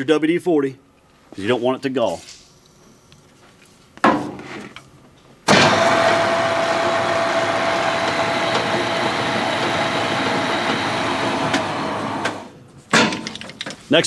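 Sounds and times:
metal lathe running: 0:05.5 - 0:12.5.

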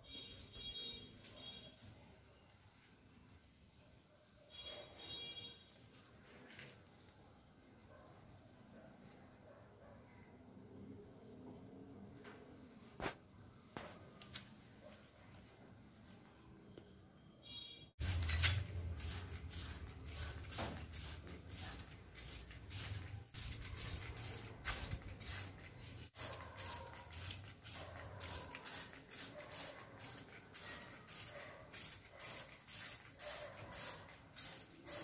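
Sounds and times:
spray bottle hissing: 0:18.0 - 0:35.0.

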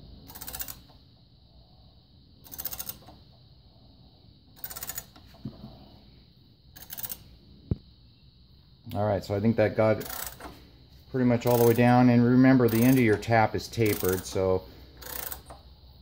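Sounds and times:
ratchet tap handle clicking: 0:13.8 - 0:14.4, 0:15.0 - 0:15.6.

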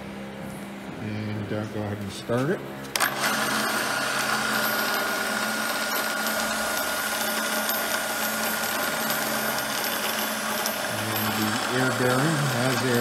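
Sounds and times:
tool grinder running: 0:02.9 - 0:13.0.

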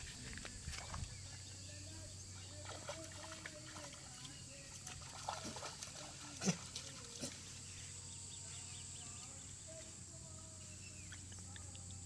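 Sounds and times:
faint bird chirps: 0:07.0 - 0:12.0.

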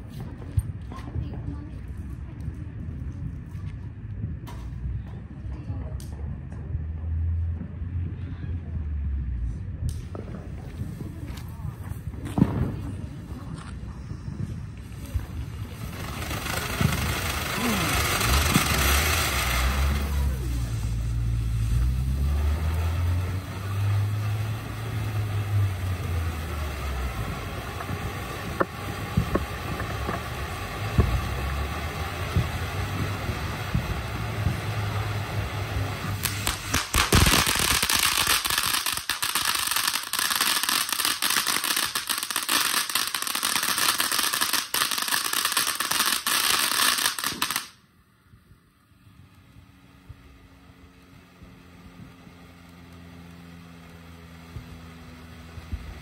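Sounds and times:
low rumble: 0:00.0 - 0:40.1
firework crackling: 0:00.0 - 0:56.0
firework fountain hissing: 0:09.9 - 0:56.0.

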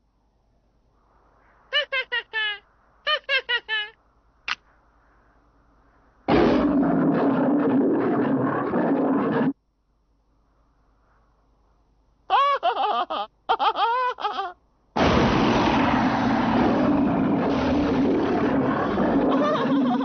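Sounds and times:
loud dense crash noise: 0:15.0 - 0:19.2.

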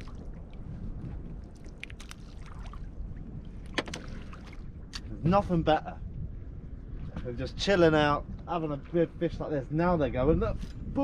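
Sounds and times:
water lapping against boat hull: 0:00.0 - 0:05.2
steady low rumble: 0:00.0 - 0:11.0.

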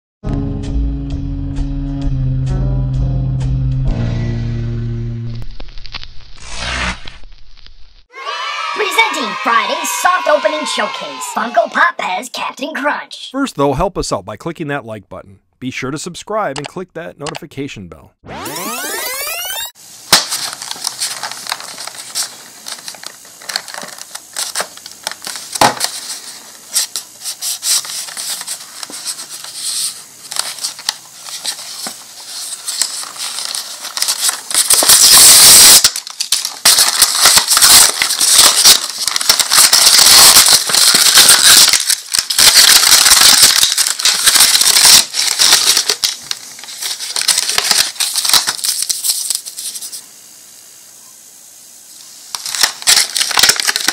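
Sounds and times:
plastic packaging crinkling: 0:20.1 - 0:50.0, 0:52.3 - 0:53.9.

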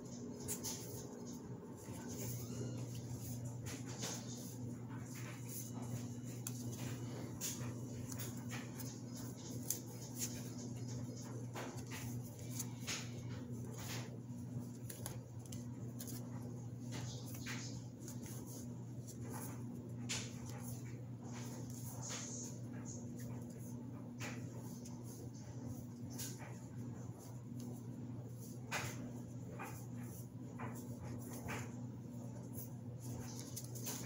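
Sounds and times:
steady low hum: 0:00.0 - 0:34.0
cards clicking and sliding: 0:02.2 - 0:16.3.

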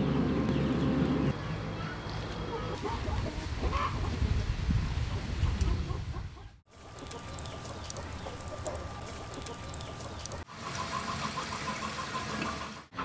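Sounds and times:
outdoor ambience: 0:00.0 - 0:13.0
chickens clucking: 0:02.4 - 0:04.5, 0:05.1 - 0:13.0.

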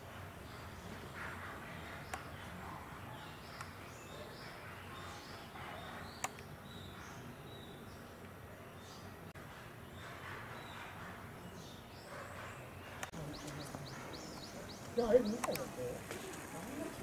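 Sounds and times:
birds chirping: 0:00.0 - 0:17.0
sharp clicks: 0:14.8 - 0:15.7.

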